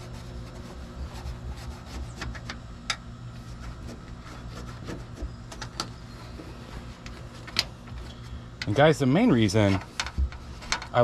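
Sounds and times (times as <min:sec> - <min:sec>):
towel wiping plastic: 0:00.0 - 0:02.6, 0:03.3 - 0:08.1
steady low hum: 0:00.0 - 0:11.0.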